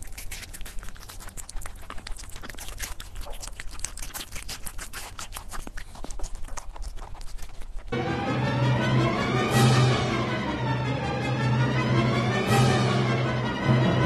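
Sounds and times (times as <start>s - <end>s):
rabbit chewing: 0.0s - 8.0s.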